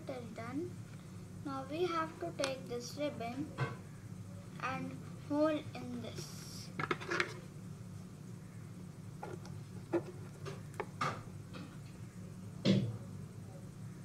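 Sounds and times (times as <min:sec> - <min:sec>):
steady low hum: 0:00.0 - 0:14.0
loud knock on table: 0:12.7 - 0:12.9.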